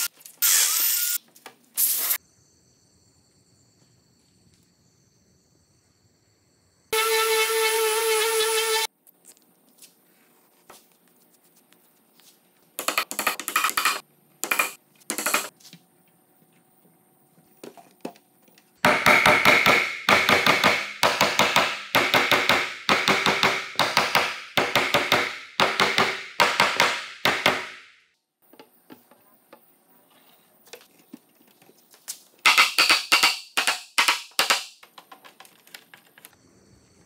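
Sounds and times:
rubber mallet striking wood: 18.8s - 27.9s.

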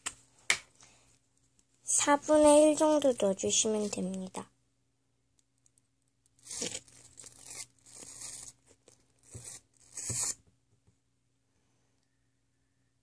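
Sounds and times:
plastic glue bottle crackling: 5.4s - 10.4s.

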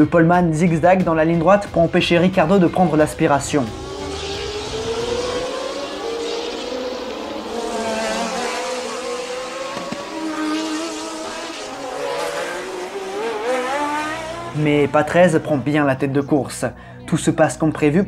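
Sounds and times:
racing car engines at full throttle: 2.1s - 16.1s.

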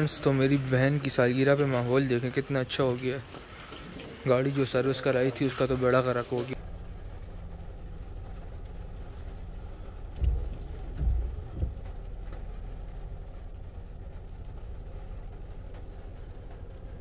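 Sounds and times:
car engine running: 6.5s - 17.0s
low thumps: 6.6s - 17.0s.

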